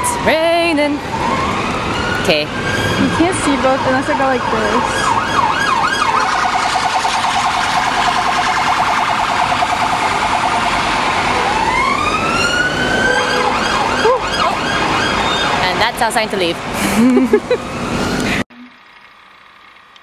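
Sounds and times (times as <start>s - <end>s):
emergency vehicle siren: 0.0s - 15.8s.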